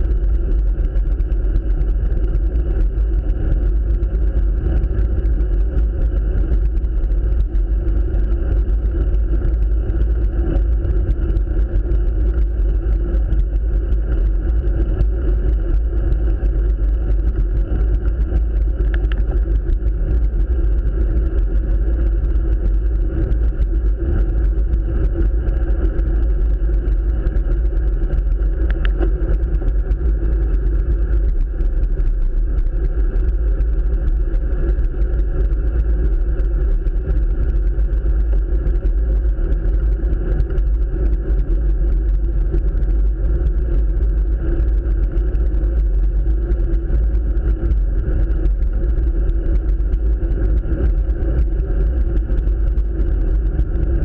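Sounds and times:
faint ticks: 0:17.3 - 0:53.9.

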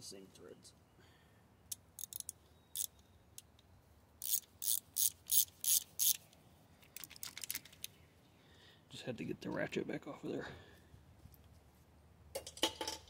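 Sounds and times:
socket ratchet clicking: 0:01.7 - 0:03.5, 0:04.2 - 0:06.2.

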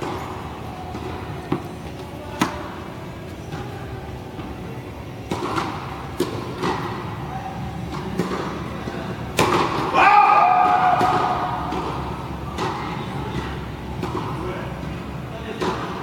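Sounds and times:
tennis ball bouncing on court: 0:00.0 - 0:02.8, 0:05.2 - 0:07.2, 0:07.8 - 0:14.4, 0:15.5 - 0:16.0
tennis ball hit off strings: 0:09.2 - 0:14.4.

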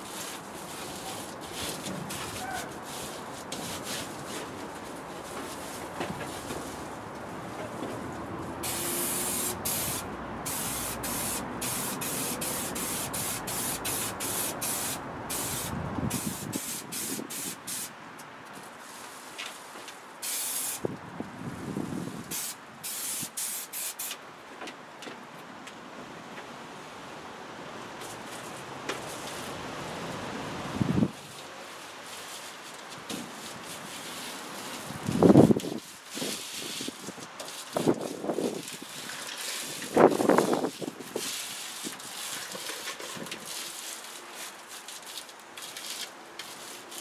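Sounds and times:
aerosol can spraying: 0:08.6 - 0:17.9, 0:20.2 - 0:20.8, 0:22.3 - 0:24.2.

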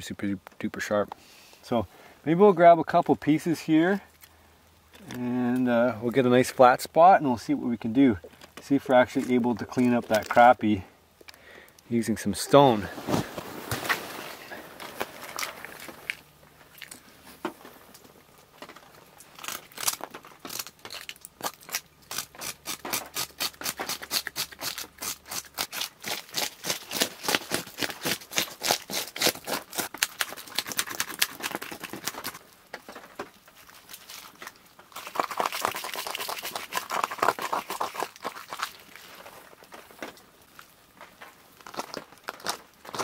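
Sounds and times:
fish scales scraping: 0:35.0 - 0:39.6.

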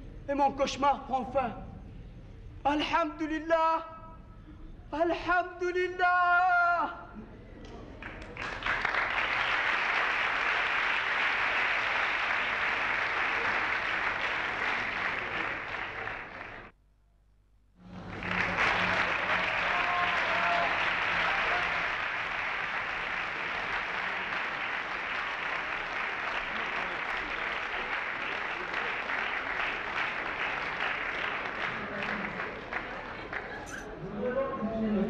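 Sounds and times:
audience applauding: 0:07.9 - 0:16.7, 0:17.8 - 0:33.8.

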